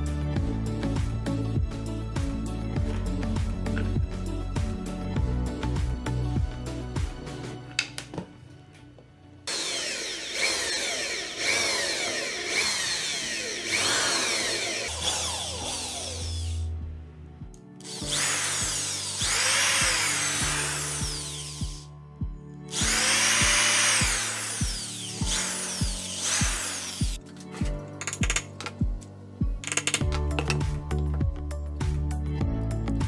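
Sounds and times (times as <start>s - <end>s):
electric drill boring into wood: 9.5s - 16.7s, 17.8s - 21.9s, 22.7s - 27.2s.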